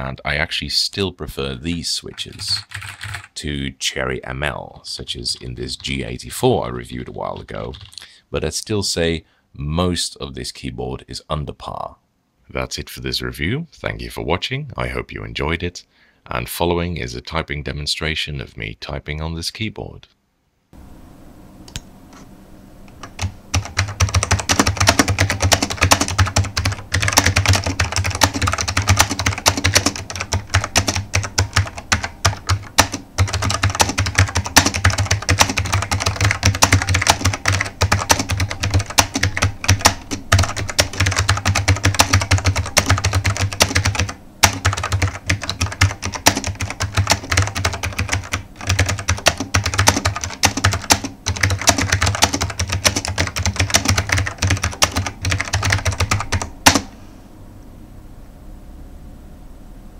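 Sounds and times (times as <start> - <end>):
fast clicky keyboard typing: 2.0 - 3.4, 7.0 - 8.1, 23.0 - 56.9.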